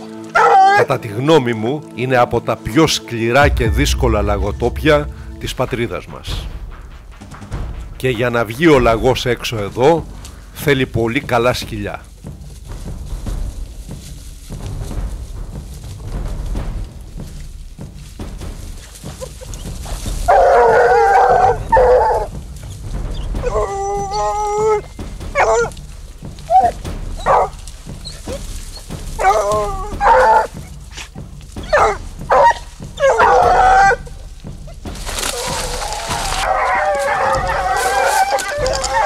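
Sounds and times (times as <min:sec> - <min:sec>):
hounds baying: 0:00.0 - 0:00.9, 0:19.1 - 0:22.4, 0:23.1 - 0:25.8, 0:26.4 - 0:39.0.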